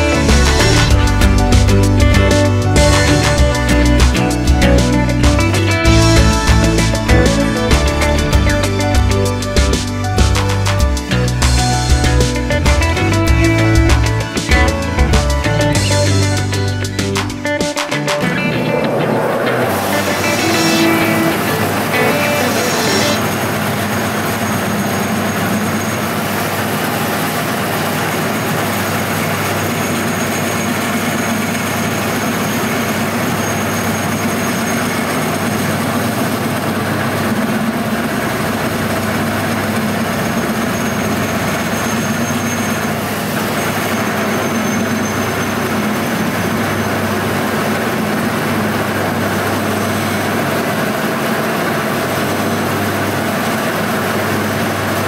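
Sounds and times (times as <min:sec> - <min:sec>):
metal lathe humming: 0:18.6 - 0:24.1.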